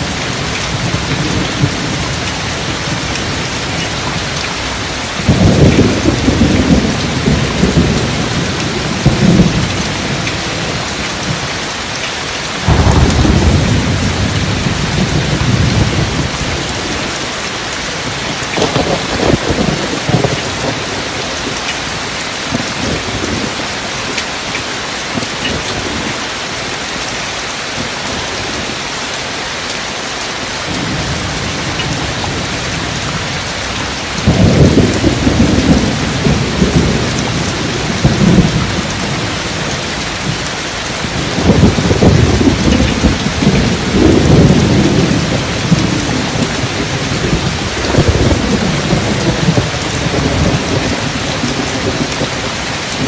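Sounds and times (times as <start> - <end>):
steady rain: 0.0 - 53.0
deep rolls of thunder: 5.2 - 11.4, 12.6 - 17.2, 18.0 - 21.0, 30.7 - 40.4, 41.0 - 53.0.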